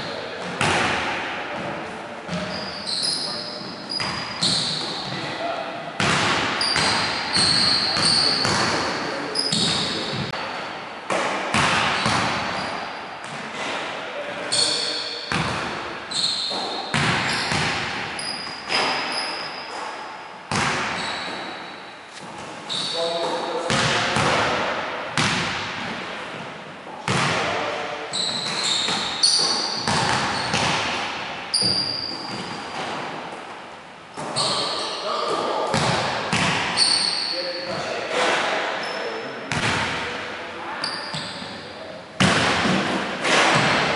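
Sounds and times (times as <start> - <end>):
basketball thudding in echoing gym: 0.0 - 5.4, 6.0 - 33.5, 34.1 - 38.6, 39.4 - 43.9
sneakers squeaking on hardwood: 2.3 - 5.4, 6.0 - 10.4, 11.5 - 13.7, 14.5 - 23.9, 28.1 - 30.9, 31.5 - 33.4, 34.1 - 37.9, 40.8 - 43.7
basketball bouncing on wooden floor: 16.5 - 18.0, 20.5 - 21.4, 23.7 - 24.4, 27.1 - 27.4, 28.3 - 31.0, 35.7 - 36.8.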